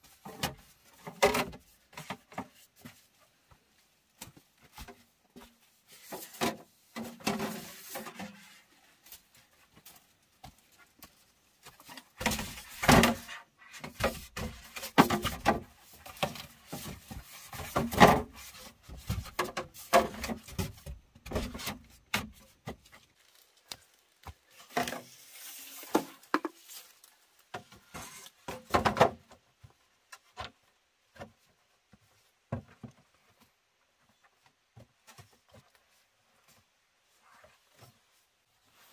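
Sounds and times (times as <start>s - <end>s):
wooden knocks and scraping: 11.7s - 23.0s.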